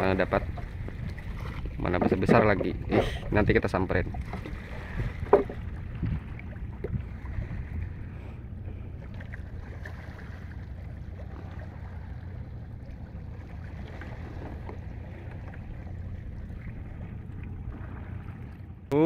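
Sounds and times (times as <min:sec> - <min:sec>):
wind rumble on microphone: 0:00.0 - 0:10.7
water lapping around boat: 0:00.0 - 0:19.0.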